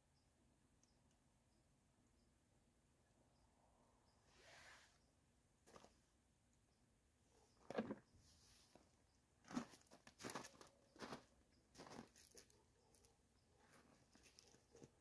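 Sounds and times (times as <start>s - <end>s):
footsteps crunching on dry ground: 9.4s - 12.5s.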